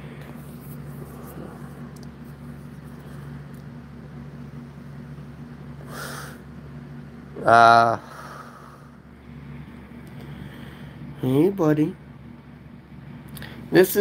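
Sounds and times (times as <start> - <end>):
appliance humming: 0.0 - 14.0
breathy puff: 5.8 - 6.4.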